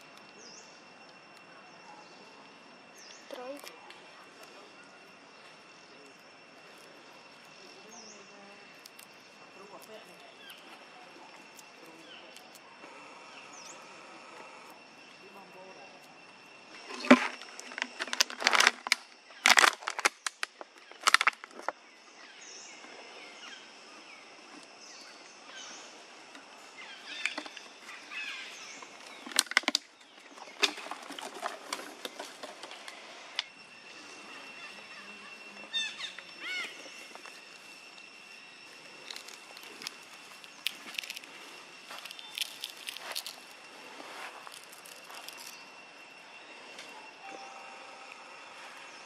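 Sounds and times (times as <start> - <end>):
plastic bottle crackling: 16.9 - 21.7.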